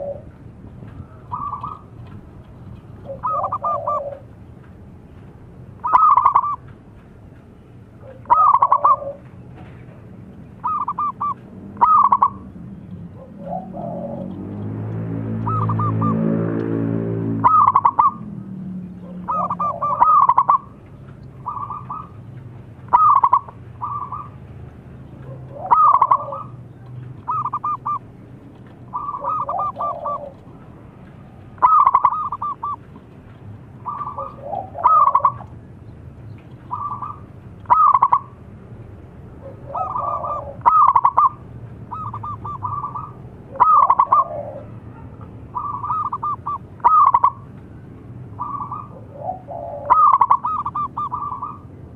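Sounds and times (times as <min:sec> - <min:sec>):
dove cooing: 0:00.0 - 0:00.4, 0:01.0 - 0:02.2, 0:03.0 - 0:04.4, 0:05.8 - 0:06.7, 0:08.0 - 0:09.4, 0:10.6 - 0:14.6, 0:15.4 - 0:16.4, 0:17.3 - 0:18.3, 0:18.9 - 0:20.8, 0:21.4 - 0:22.3, 0:22.9 - 0:24.4, 0:25.2 - 0:28.1, 0:28.9 - 0:30.7, 0:31.6 - 0:32.9, 0:33.8 - 0:35.5, 0:36.7 - 0:38.4, 0:39.4 - 0:47.6, 0:48.3 - 0:51.8.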